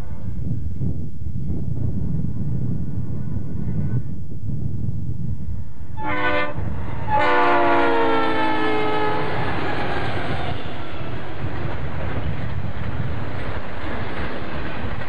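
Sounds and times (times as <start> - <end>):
passing train rumble: 0.0 - 15.0
locomotive air horn blasts: 6.0 - 9.5.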